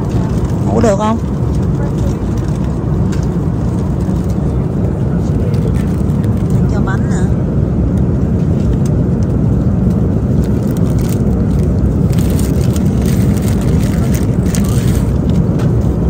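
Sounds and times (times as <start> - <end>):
vehicle rumble inside cabin: 0.0 - 16.0.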